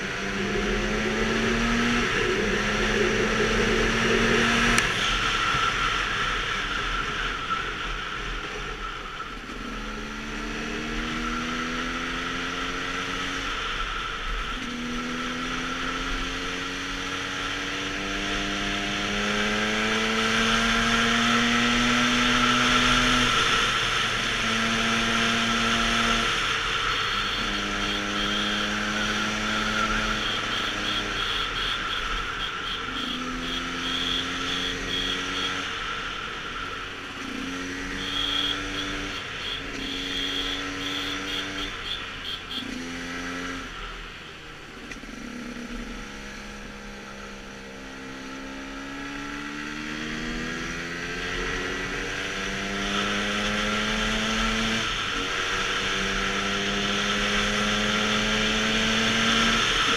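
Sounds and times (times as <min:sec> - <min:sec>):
motorcycle two-stroke engine revving: 0:00.0 - 0:05.6, 0:17.4 - 0:35.7, 0:37.1 - 0:43.8.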